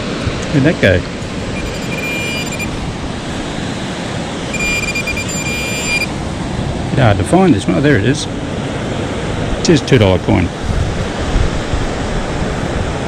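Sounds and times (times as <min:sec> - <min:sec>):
surf washing: 0:00.0 - 0:13.0
metal detector tone: 0:01.4 - 0:02.8, 0:04.5 - 0:06.2.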